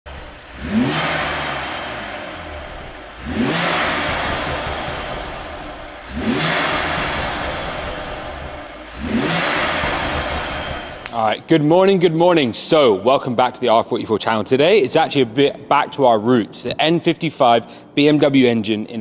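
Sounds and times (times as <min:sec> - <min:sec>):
car engine revving: 0:00.1 - 0:11.3.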